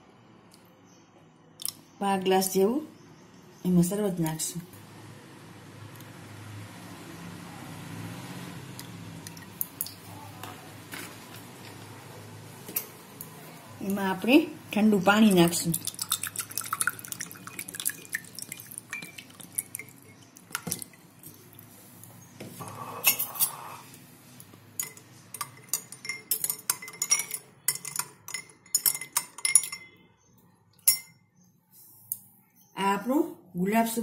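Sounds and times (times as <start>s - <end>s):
water pouring into glasses: 15.2s - 21.6s
spoon clinking in glass: 18.9s - 20.3s, 24.8s - 30.0s, 30.8s - 31.2s.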